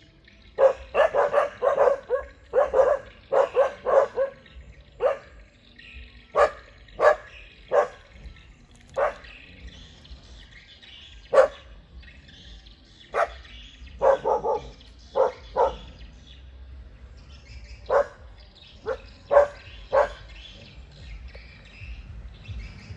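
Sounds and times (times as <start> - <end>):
dogs barking: 0.5 - 10.4, 11.1 - 12.2, 13.0 - 16.5, 17.6 - 22.9.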